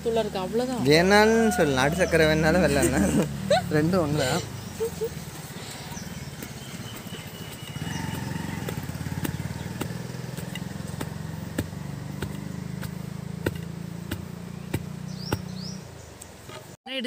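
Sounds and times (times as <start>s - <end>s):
pestle pounding in stone mortar: 6.1s - 15.6s.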